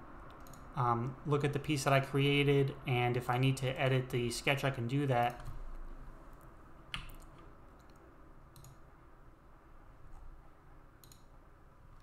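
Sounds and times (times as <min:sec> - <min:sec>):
faint room noise: 0:00.0 - 0:12.0
computer mouse clicks: 0:00.3 - 0:00.7, 0:06.3 - 0:08.8, 0:11.0 - 0:11.4.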